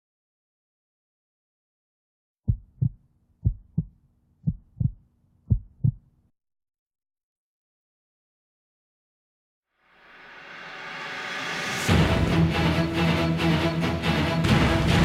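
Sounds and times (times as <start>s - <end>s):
heartbeat thumps: 2.5s - 6.0s.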